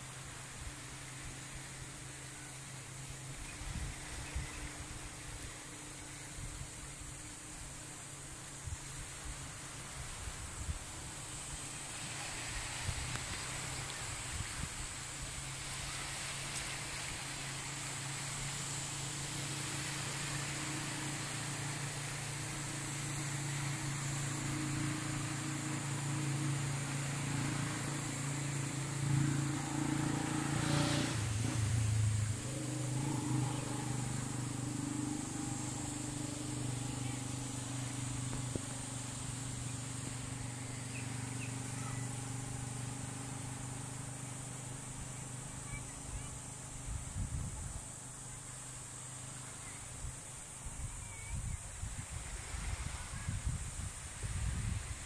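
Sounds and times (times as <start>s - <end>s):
engine droning: 10.9s - 50.8s.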